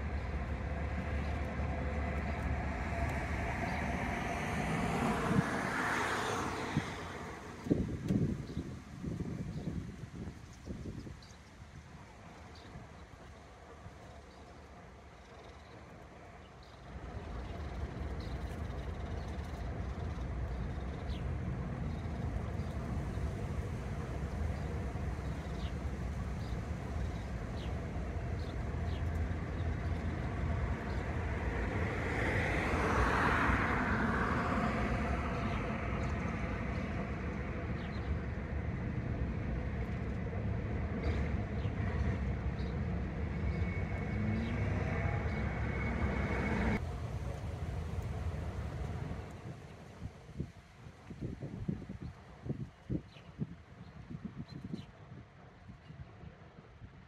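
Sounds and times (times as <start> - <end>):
vehicle passing: 0.0 - 8.0, 21.2 - 49.6
road traffic rumble: 0.0 - 54.4.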